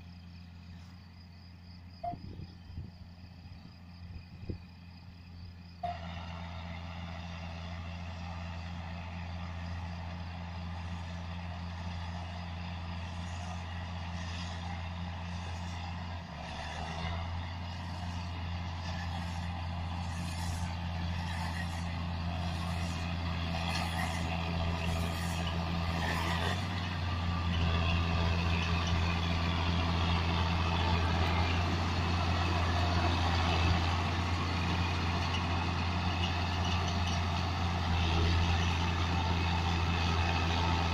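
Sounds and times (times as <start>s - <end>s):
tractor diesel engine hum: 0.0s - 40.9s
baler whine: 17.8s - 40.9s.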